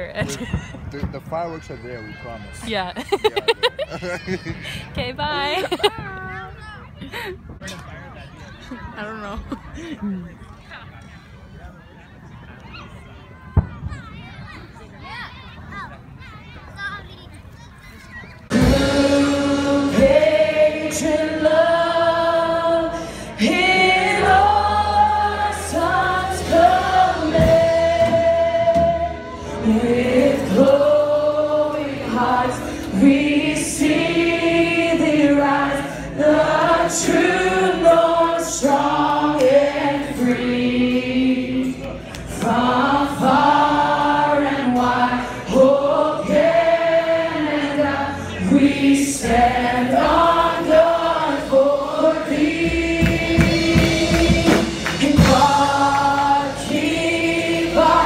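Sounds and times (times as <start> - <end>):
live band playing: 18.5 - 21.6, 22.6 - 34.7, 35.4 - 58.0
congregation singing: 18.5 - 58.0.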